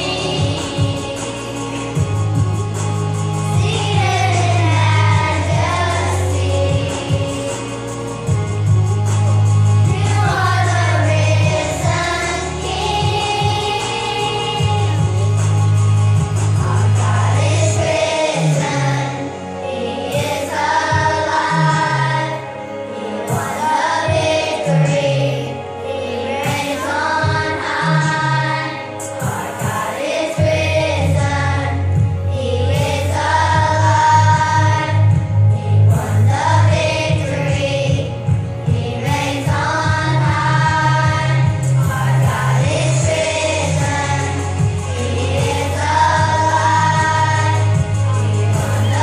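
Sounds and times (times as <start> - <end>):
pulsing bass line: 0.0 - 19.1, 30.4 - 49.0
children's choir singing: 0.0 - 49.0.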